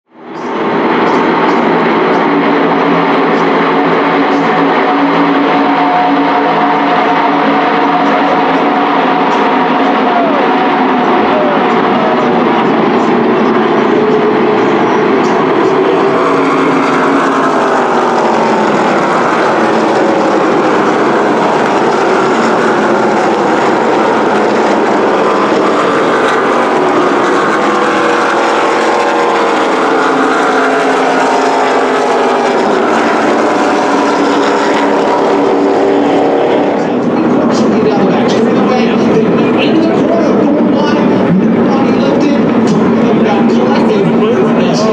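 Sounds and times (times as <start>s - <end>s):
race truck engines passing: 0.1s - 44.9s.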